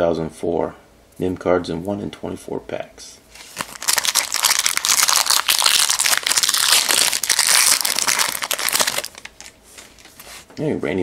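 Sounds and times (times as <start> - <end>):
foil wrapper crinkling: 3.4 - 9.6.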